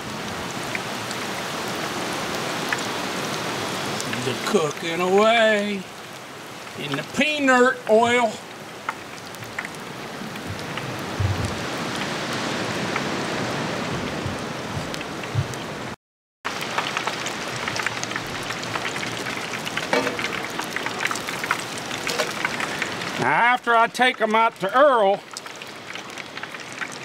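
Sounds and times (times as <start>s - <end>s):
deep-frying sizzle: 0.6s - 13.3s, 16.5s - 27.0s
oil popping and crackling: 2.6s - 3.0s, 3.8s - 12.2s, 16.5s - 27.0s.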